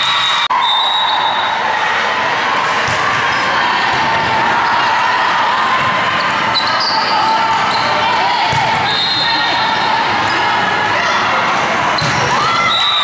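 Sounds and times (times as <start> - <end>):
crowd voices in gym: 0.0 - 13.0
balls bouncing on court floor: 2.8 - 3.3, 7.5 - 9.0, 12.0 - 12.7.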